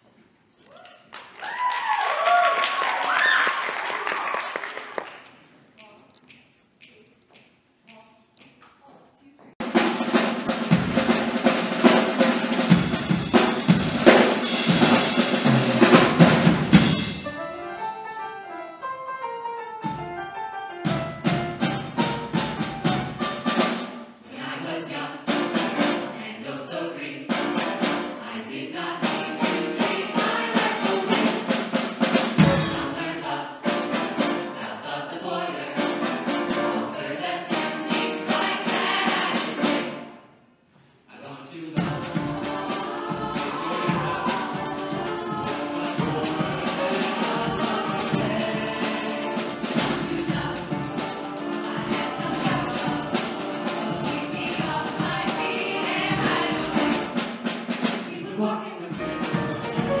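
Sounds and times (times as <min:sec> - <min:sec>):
drum kit: 0:09.6 - 0:17.4, 0:19.8 - 0:24.2, 0:25.3 - 0:26.2, 0:27.3 - 0:28.2, 0:29.0 - 0:34.6, 0:35.7 - 0:36.8, 0:37.5 - 0:40.1, 0:41.8 - 0:58.2, 0:58.9 - 1:00.0
grand piano: 0:09.6 - 0:24.3, 0:25.2 - 0:26.3, 0:29.0 - 0:34.8, 0:35.6 - 0:40.4, 0:41.8 - 0:58.1, 0:58.9 - 1:00.0.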